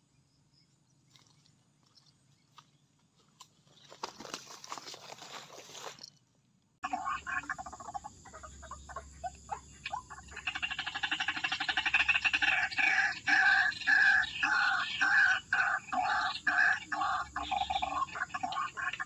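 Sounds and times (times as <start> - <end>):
waterhens calling and croaking: 6.8 - 19.0.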